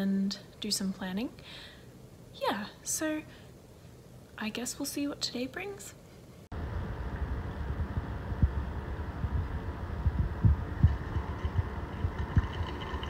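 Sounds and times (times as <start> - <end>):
low thumps: 6.6 - 12.8
magnetic stirrer humming: 6.6 - 13.0.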